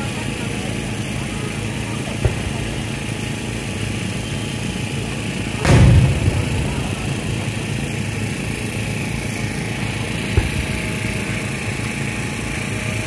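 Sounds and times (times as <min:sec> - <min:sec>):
fireworks rumbling: 0:01.4 - 0:13.0
sharp firework pop: 0:02.2 - 0:02.8, 0:05.6 - 0:08.3, 0:10.2 - 0:11.1.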